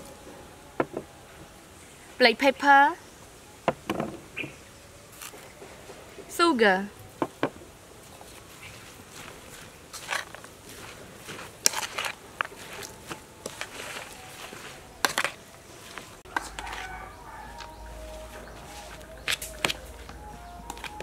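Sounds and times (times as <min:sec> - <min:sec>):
spoon scraping metal bowl: 0:11.6 - 0:12.8
low hum: 0:12.1 - 0:21.0
chickens clucking: 0:16.2 - 0:21.0.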